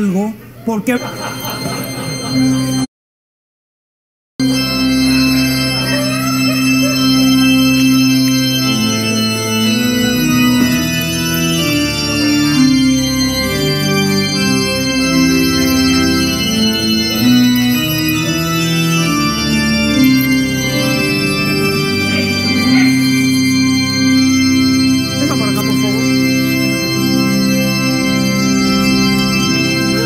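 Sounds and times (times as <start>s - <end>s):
slow organ music: 0.9s - 2.9s, 4.4s - 30.0s.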